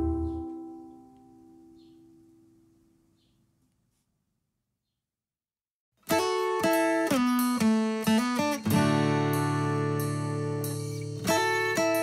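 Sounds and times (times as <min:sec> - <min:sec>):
plucked guitar chord ringing: 0:00.0 - 0:01.8.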